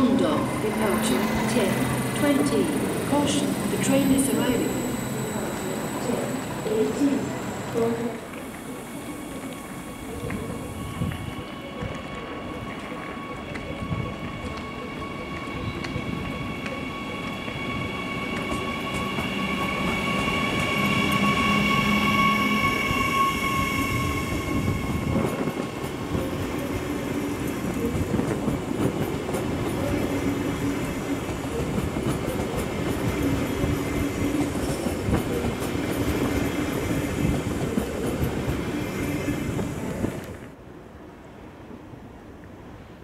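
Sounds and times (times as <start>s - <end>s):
electric locomotive traction whine: 0.0s - 40.6s.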